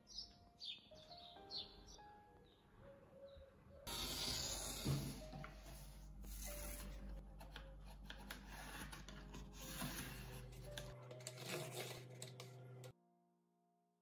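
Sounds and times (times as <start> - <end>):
cardboard and ruler rubbing: 8.1 - 12.5.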